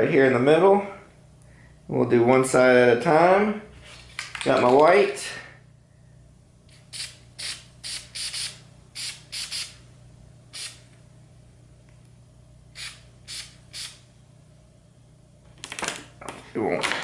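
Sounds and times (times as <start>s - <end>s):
spray paint hissing bursts: 6.8s - 9.8s, 10.6s - 10.8s, 12.8s - 14.0s.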